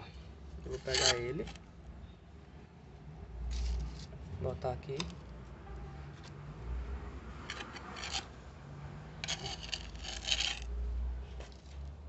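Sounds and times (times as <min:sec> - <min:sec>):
hands scraping soil on tiles: 0:00.7 - 0:01.6, 0:03.5 - 0:04.2, 0:07.5 - 0:08.3, 0:09.2 - 0:10.8.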